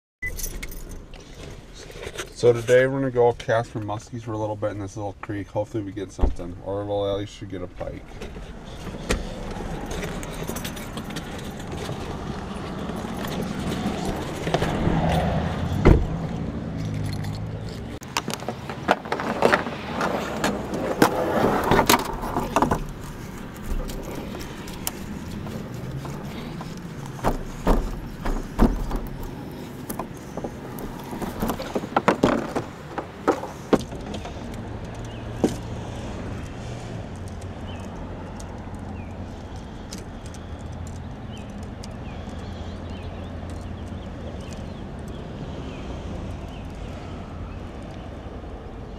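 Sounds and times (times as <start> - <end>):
strap hooks and buckles clinking: 0.2 - 2.4, 9.8 - 14.7, 16.7 - 19.3, 21.8 - 35.7
clicks knocks and thumps: 8.2 - 35.7.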